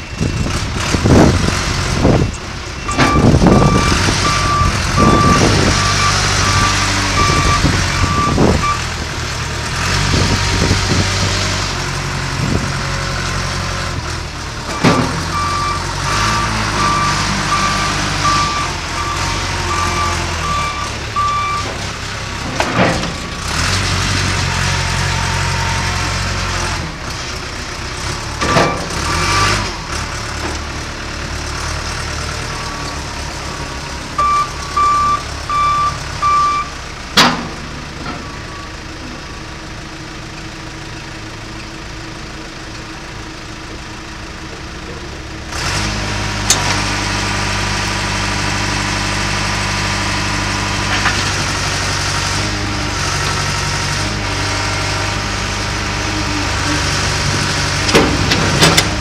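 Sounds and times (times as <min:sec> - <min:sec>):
diesel engine running: 0:00.0 - 0:59.0
reversing alarm beeping: 0:02.1 - 0:08.9, 0:14.7 - 0:21.7, 0:33.5 - 0:36.8.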